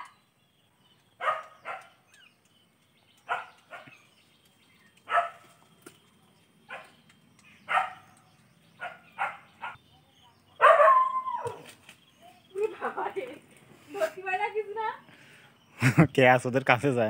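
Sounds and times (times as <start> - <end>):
dog barking: 1.2 - 2.0, 3.2 - 4.0, 5.1 - 5.4, 7.7 - 8.1, 8.8 - 9.8, 10.6 - 11.1.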